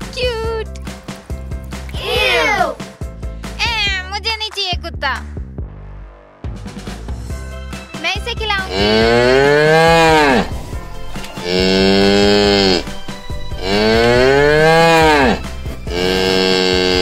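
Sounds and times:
cattle mooing: 0:08.6 - 0:17.0.

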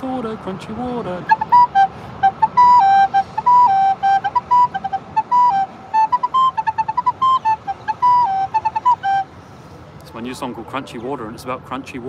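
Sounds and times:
recorder playing a bright tune: 0:01.2 - 0:09.4.

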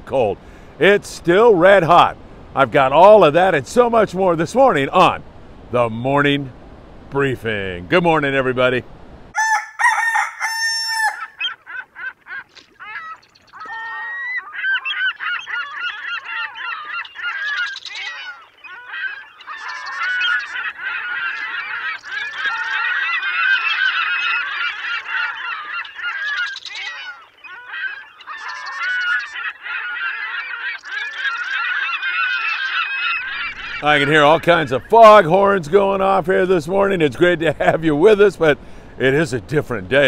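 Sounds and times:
flock of birds honking: 0:09.4 - 0:36.5.

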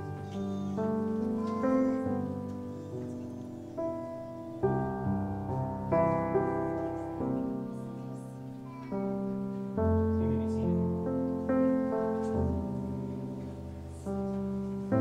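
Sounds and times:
slow quiet piano chords: 0:00.0 - 0:15.0.

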